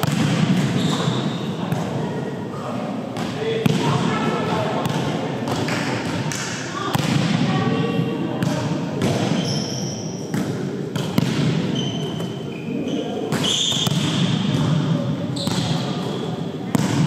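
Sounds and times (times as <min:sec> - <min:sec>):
sneakers squeaking on court: 0:00.0 - 0:02.0, 0:08.4 - 0:17.0
volleyball hits: 0:00.0 - 0:02.0, 0:03.2 - 0:07.6, 0:08.4 - 0:09.5, 0:10.3 - 0:12.4, 0:13.3 - 0:17.0
murmur of voices: 0:00.0 - 0:17.0.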